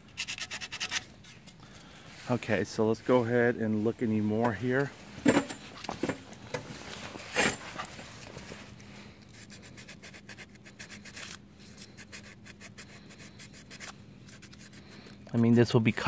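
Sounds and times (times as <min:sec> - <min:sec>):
hand sanding with sandpaper: 0:09.4 - 0:15.6.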